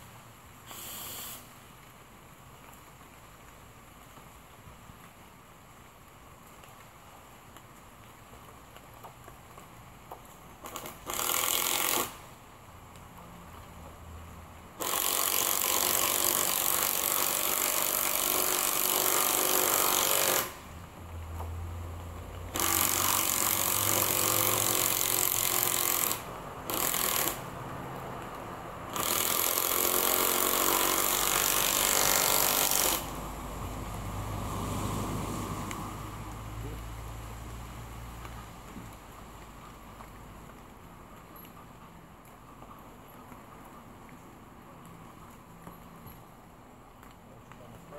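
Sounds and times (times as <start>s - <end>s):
power drill driving screws into wood: 0.7s - 1.5s, 10.6s - 12.3s, 14.8s - 20.7s, 22.5s - 27.5s, 28.9s - 33.2s.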